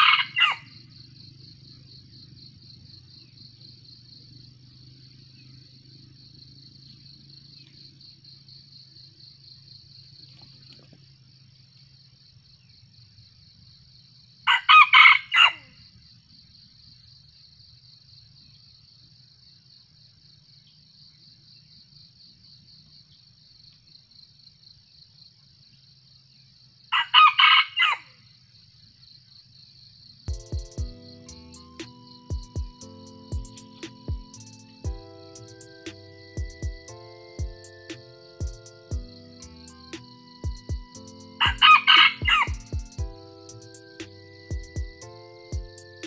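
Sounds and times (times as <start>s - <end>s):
rooster crowing: 0.0s - 0.8s, 14.5s - 15.8s, 26.9s - 28.1s, 40.6s - 42.9s
insects chirring: 0.0s - 46.0s.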